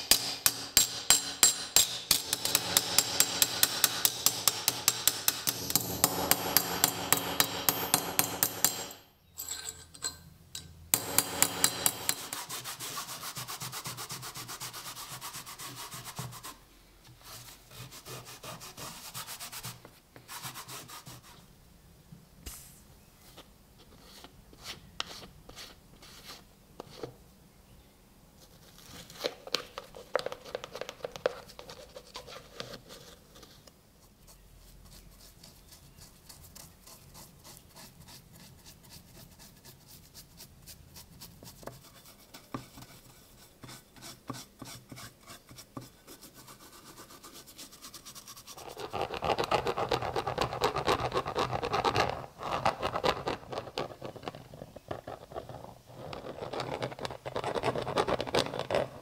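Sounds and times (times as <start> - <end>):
brush scrubbing metal: 34.3 - 49.1.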